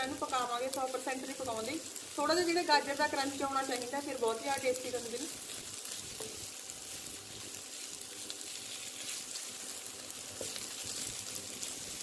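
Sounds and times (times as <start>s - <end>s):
vegetables sizzling in hot oil: 0.0s - 12.0s
wooden spatula stirring: 4.9s - 12.0s.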